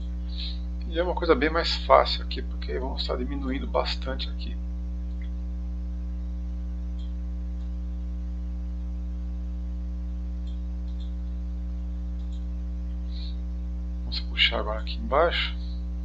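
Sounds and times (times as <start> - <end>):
electrical mains hum: 0.0 - 16.0
faint ticks: 6.9 - 7.8, 10.0 - 11.5, 12.1 - 13.3.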